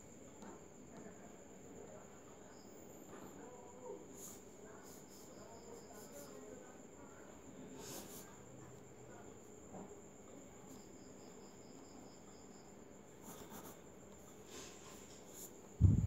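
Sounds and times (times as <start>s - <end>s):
high-pitched insect trill: 4.3s - 6.7s
pen scratching on paper: 13.2s - 13.9s.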